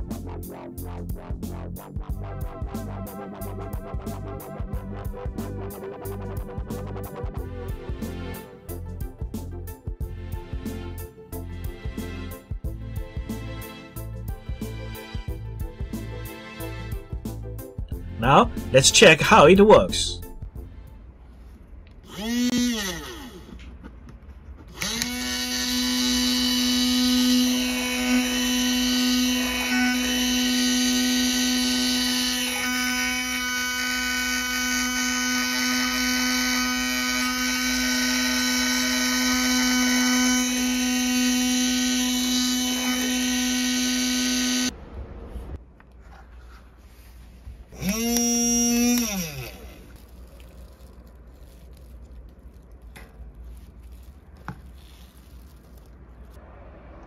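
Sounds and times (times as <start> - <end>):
small electric motor running: 22.1 - 23.6, 24.7 - 44.7, 47.8 - 51.9, 53.4 - 55.8.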